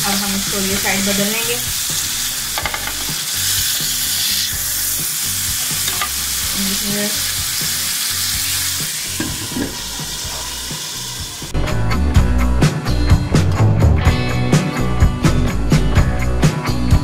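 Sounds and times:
chicken sizzling on a grill pan: 0:00.0 - 0:11.5
tongs clicking against pan: 0:05.8 - 0:06.2.

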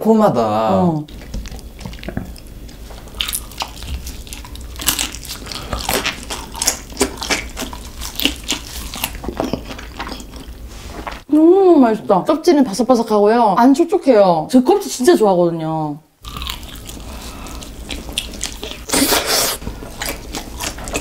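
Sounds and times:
crispy skin cracking: 0:01.1 - 0:09.4
crunching and chewing: 0:01.1 - 0:11.2, 0:16.2 - 0:21.0.

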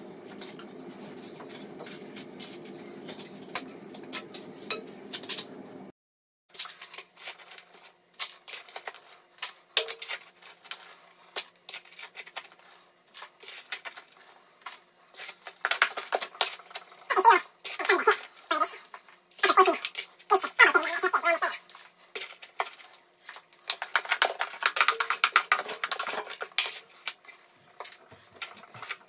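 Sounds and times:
steady low hum: 0:00.0 - 0:05.9.

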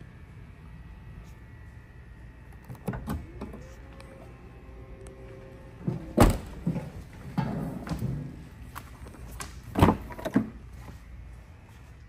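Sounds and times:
motor humming: 0:00.0 - 0:09.0.

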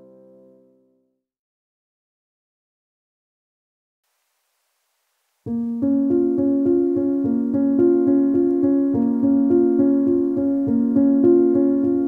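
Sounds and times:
classical piano music: 0:05.5 - 0:12.0.

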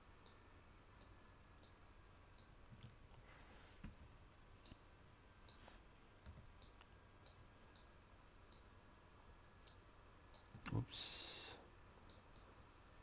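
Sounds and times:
computer mouse clicks: 0:01.0 - 0:03.2, 0:05.4 - 0:07.9, 0:08.5 - 0:08.7, 0:09.6 - 0:10.7, 0:12.1 - 0:12.5.

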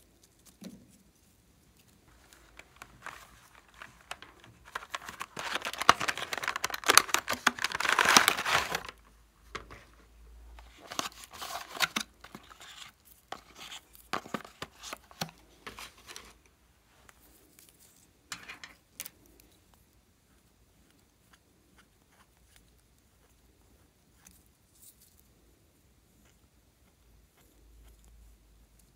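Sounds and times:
packaging tearing and crinkling: 0:02.3 - 0:09.0, 0:10.6 - 0:16.4.

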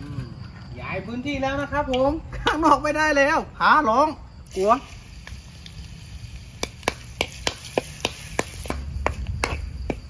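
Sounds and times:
food frying in oil: 0:04.5 - 0:08.7.

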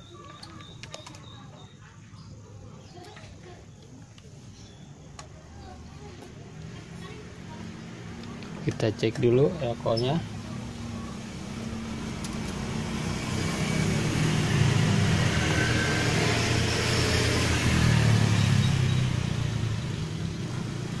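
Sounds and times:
vehicle engine passing by: 0:05.3 - 0:21.0.

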